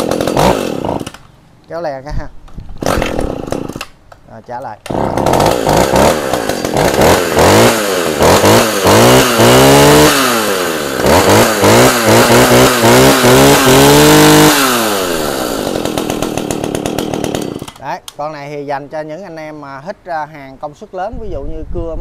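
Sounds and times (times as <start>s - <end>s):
chainsaw revving and idling: 0.0s - 1.3s, 2.8s - 4.0s, 4.8s - 17.9s.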